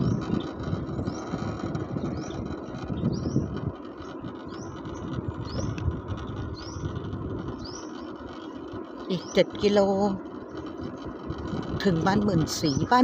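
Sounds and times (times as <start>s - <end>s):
bird chirping: 0.0s - 10.9s
vehicle rumbling slowly: 0.0s - 13.0s.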